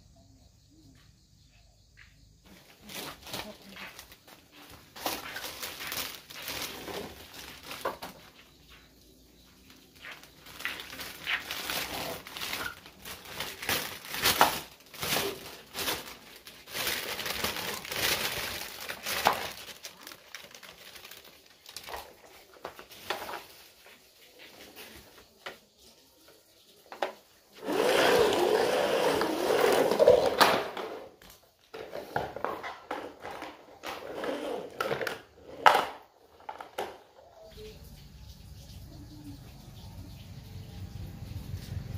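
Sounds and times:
plastic bag crinkling: 0:02.6 - 0:25.2, 0:27.6 - 0:36.9.

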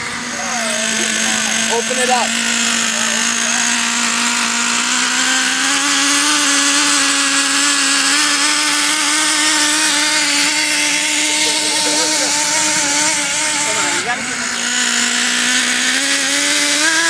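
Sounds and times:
nitro engine high-pitched buzzing: 0:00.0 - 0:17.0.

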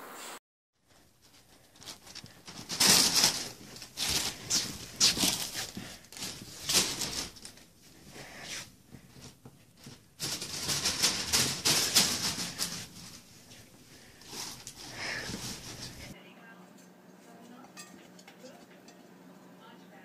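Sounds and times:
footsteps: 0:00.8 - 0:16.2
rustling: 0:00.8 - 0:16.2.

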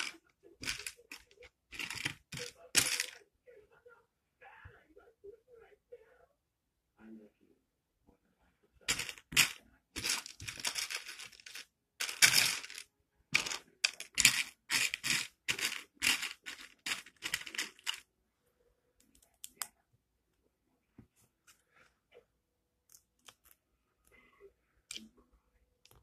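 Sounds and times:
plastic bricks clattering: 0:00.0 - 0:03.2, 0:08.9 - 0:18.1.

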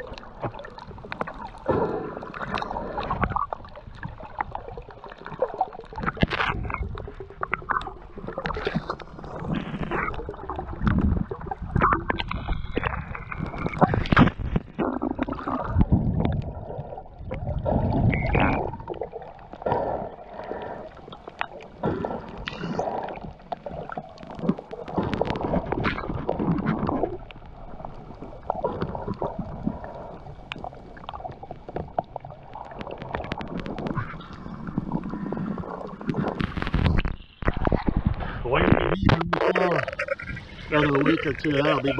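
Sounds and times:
underwater gurgling and sloshing: 0:00.0 - 0:41.9.

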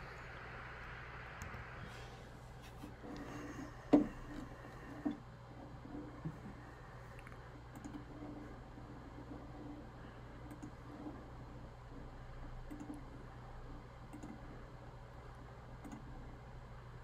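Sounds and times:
low room hum: 0:00.0 - 0:17.0
faint computer mouse clicks: 0:07.1 - 0:08.0, 0:10.4 - 0:10.8, 0:12.6 - 0:13.0, 0:14.1 - 0:14.4, 0:15.8 - 0:16.1.

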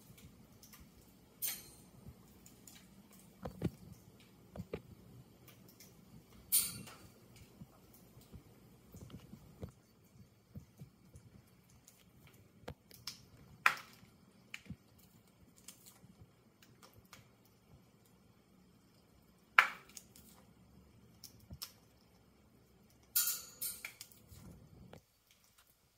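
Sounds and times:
sharp snaps: 0:19.6 - 0:20.2.

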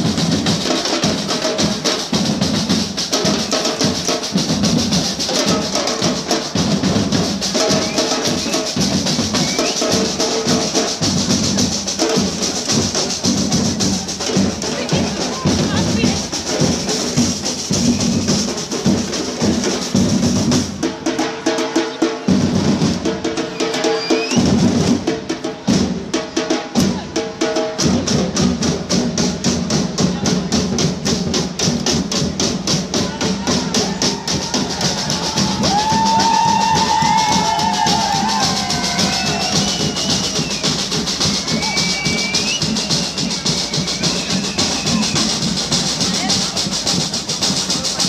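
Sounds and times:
drums in fast beat: 0:00.0 - 0:48.0
voices shouting: 0:32.9 - 0:46.7.

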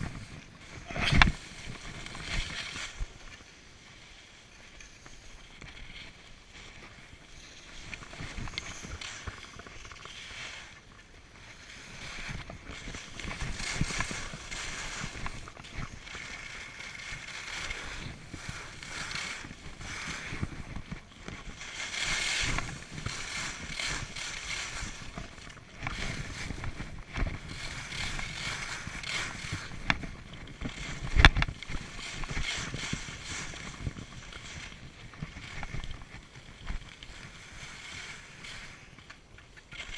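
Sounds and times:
skis scraping over snow: 0:00.0 - 0:39.9.

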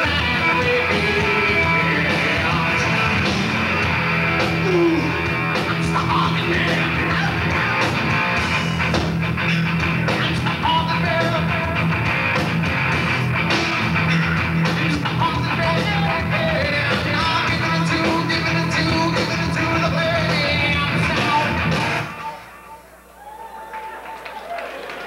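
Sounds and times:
person singing: 0:00.0 - 0:03.8, 0:04.4 - 0:07.8, 0:10.2 - 0:11.8, 0:14.8 - 0:22.4
heavy rock band playing: 0:00.0 - 0:22.8.

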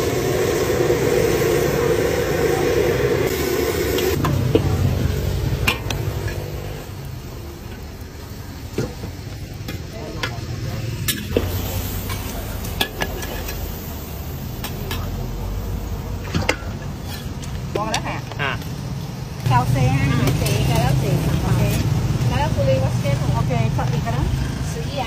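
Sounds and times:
noodles sizzling in a wok: 0:00.0 - 0:18.2
metal ladle scraping a wok: 0:16.6 - 0:17.5.

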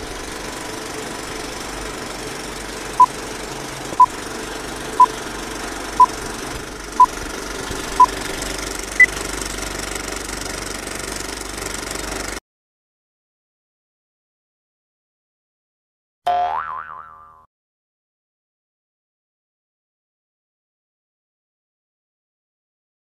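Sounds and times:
film projector clattering: 0:00.0 - 0:12.4.

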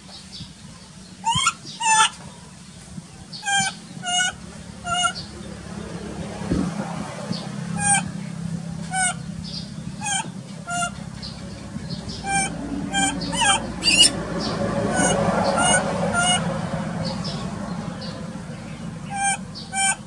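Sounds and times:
baby monkey shrill screams: 0:01.2 - 0:02.1, 0:03.4 - 0:05.2, 0:10.0 - 0:10.9, 0:12.2 - 0:14.1.

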